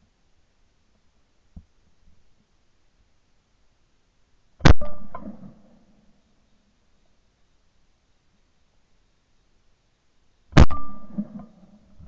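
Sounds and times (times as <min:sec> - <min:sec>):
shotgun shot echo: 0:04.6 - 0:05.8, 0:10.6 - 0:11.8.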